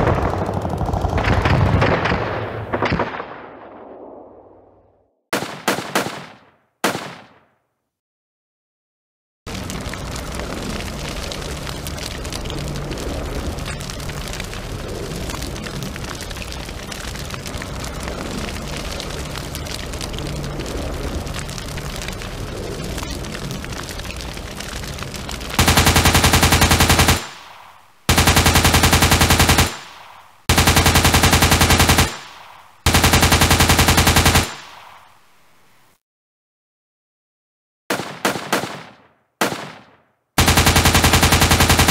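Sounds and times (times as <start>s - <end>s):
crackling gunfire: 0.0s - 7.6s, 9.5s - 35.3s, 37.9s - 41.9s
machine-gun bursts: 25.6s - 27.4s, 28.1s - 29.9s, 30.5s - 32.2s, 32.8s - 34.6s, 40.4s - 41.9s.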